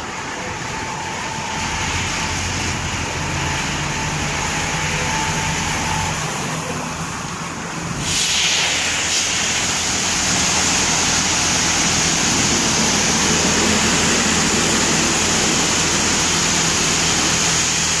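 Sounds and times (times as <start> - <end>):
high-pressure water spray hissing: 0.0 - 6.9, 7.7 - 18.0
low machine hum: 9.3 - 18.0.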